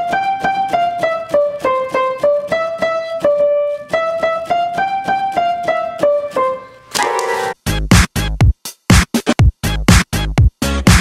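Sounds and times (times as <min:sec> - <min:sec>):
piano melody: 0:00.0 - 0:07.6.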